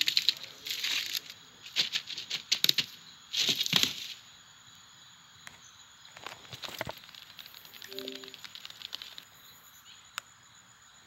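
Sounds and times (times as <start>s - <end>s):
small clicks and rattles: 6.2s - 9.4s.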